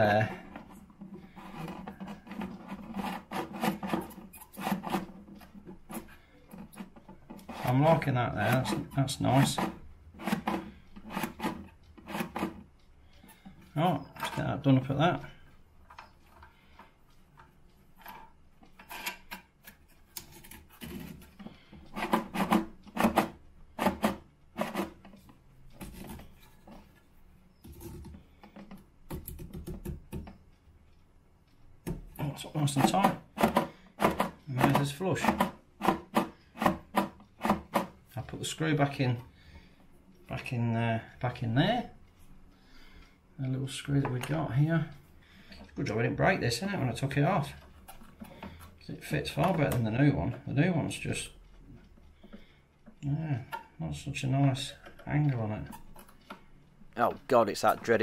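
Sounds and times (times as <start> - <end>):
plastic scraping on ceramic: 0.0 - 12.6.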